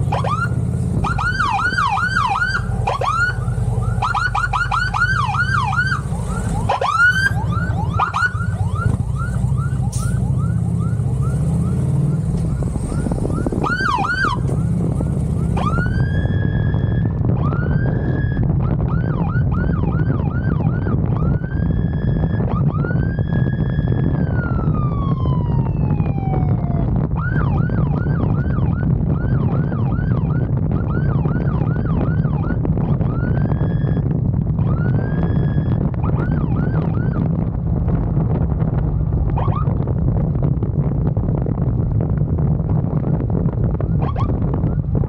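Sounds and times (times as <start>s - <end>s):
police siren whooping and wailing: 0.0s - 37.5s, 39.3s - 39.9s, 43.9s - 45.0s
motorcycle engine rumble: 0.0s - 45.0s
road wind: 0.0s - 45.0s.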